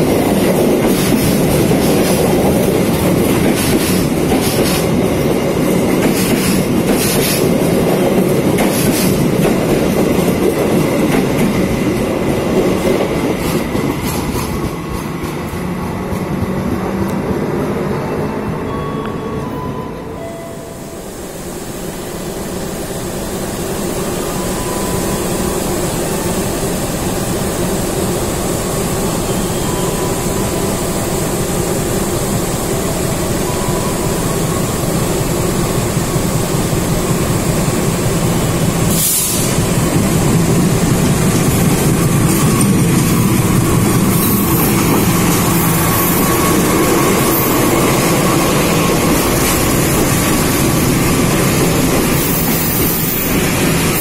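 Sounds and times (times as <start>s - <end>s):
train wagons rolling over rails: 0.0s - 18.6s, 25.7s - 54.0s
diesel locomotive engine: 0.0s - 54.0s.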